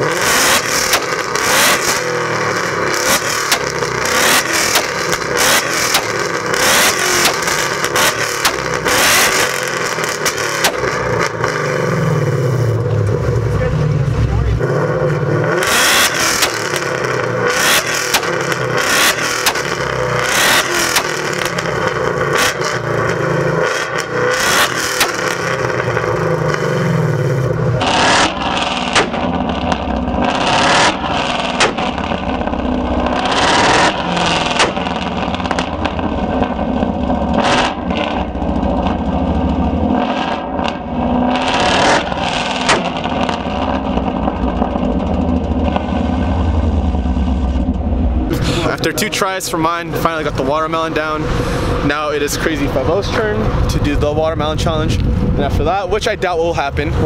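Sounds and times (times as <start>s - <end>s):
car exhaust revving: 0.0s - 57.0s
exhaust popping and banging: 0.0s - 57.0s.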